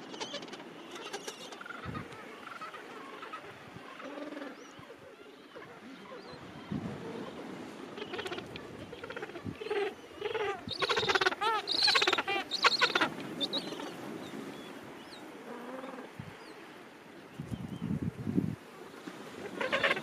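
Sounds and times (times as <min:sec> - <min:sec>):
fainter penguin calls: 0:09.1 - 0:13.8.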